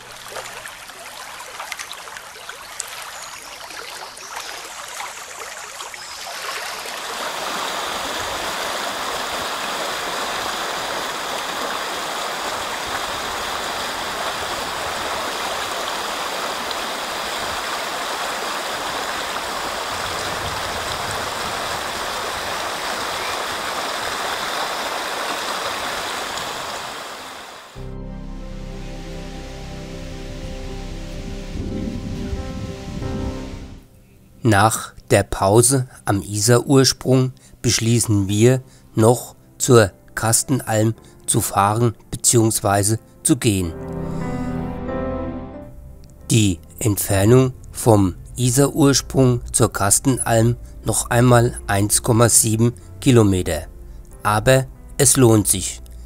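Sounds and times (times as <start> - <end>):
stream rushing over stones: 0.0 - 27.8.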